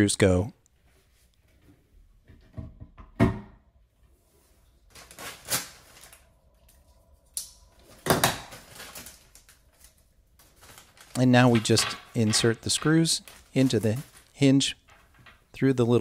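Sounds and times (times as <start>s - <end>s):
plastic bag crinkling: 4.9s - 6.4s, 7.8s - 15.5s.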